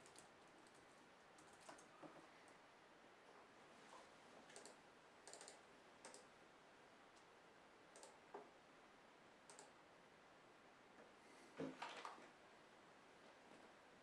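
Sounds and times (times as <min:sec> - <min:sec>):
computer mouse clicks: 0:04.5 - 0:06.3, 0:07.9 - 0:08.2, 0:09.5 - 0:09.8.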